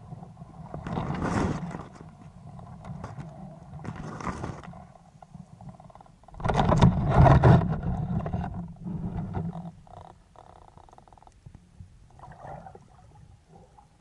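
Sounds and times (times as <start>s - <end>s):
water rushing underwater: 12.1s - 14.0s.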